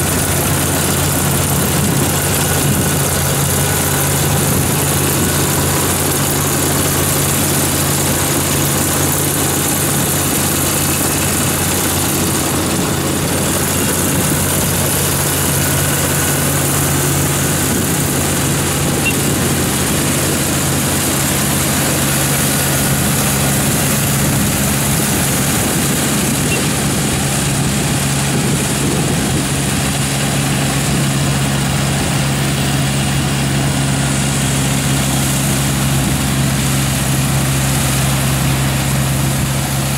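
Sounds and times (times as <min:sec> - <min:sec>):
combine harvester engine hum: 0:00.0 - 0:39.9.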